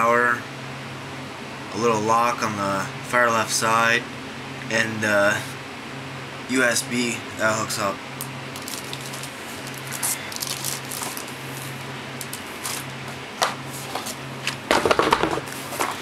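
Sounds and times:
steady low hum: 0.0 - 16.0
packaging handling noise: 8.5 - 16.0
plastic bag crinkling: 8.5 - 16.0.

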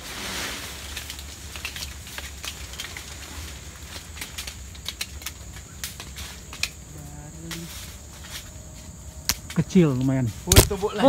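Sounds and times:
twigs and leaves snapping: 0.4 - 11.0.

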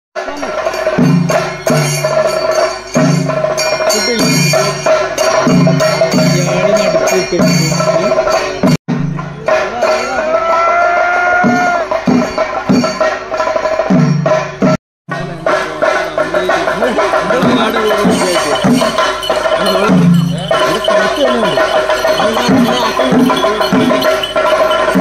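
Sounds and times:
drums struck in pattern: 0.2 - 25.0
hand cymbals clashing: 0.3 - 25.0
steady held tone: 15.3 - 25.0.

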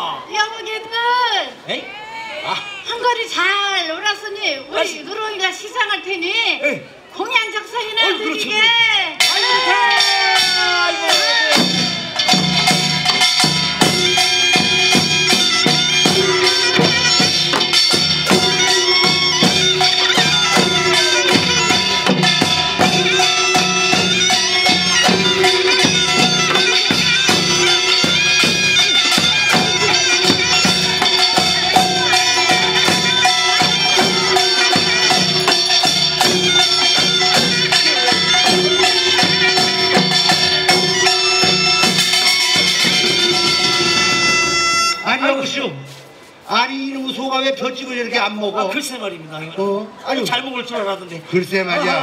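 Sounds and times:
clanging metal percussion: 9.2 - 45.2
drumming: 9.2 - 45.2
piercing double-reed wind instrument: 9.2 - 46.5.

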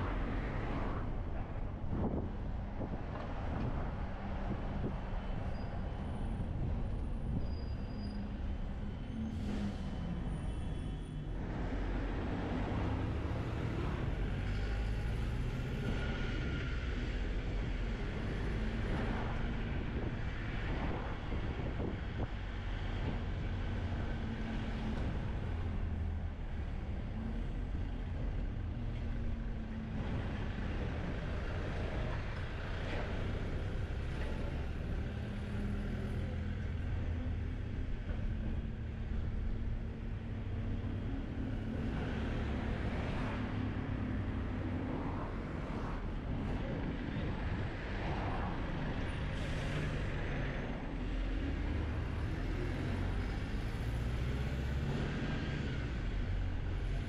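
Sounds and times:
vehicle engine drone: 0.0 - 57.0.

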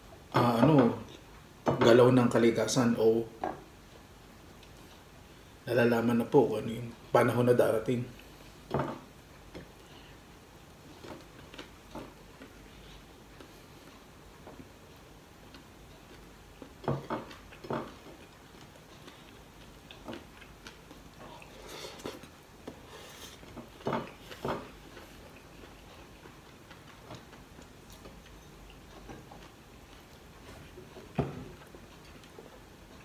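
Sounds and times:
chewing: 10.8 - 33.0.

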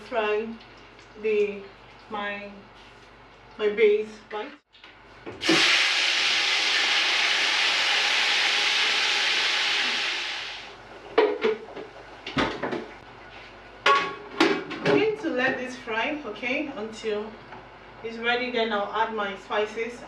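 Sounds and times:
loud sizzling in hot oil: 5.4 - 10.7.

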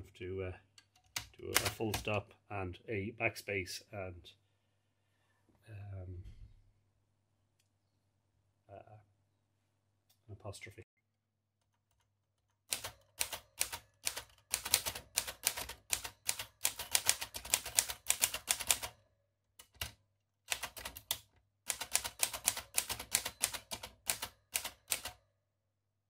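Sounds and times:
typewriter typing: 1.0 - 2.2, 12.7 - 19.0, 19.6 - 25.2.

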